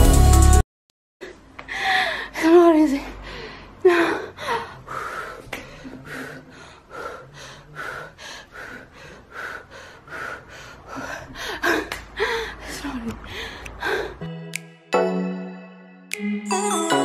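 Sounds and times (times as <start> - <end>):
woman breathing hard: 1.2 - 2.4, 3.1 - 14.3
woman gasping: 1.2 - 14.2.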